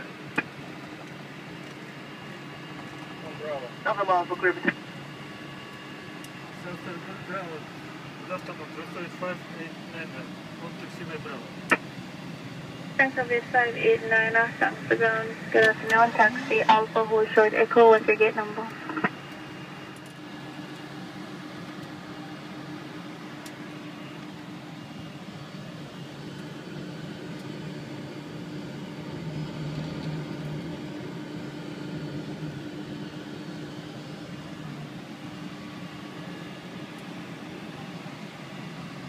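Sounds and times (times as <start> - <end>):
airliner cockpit hum: 0.0 - 39.0.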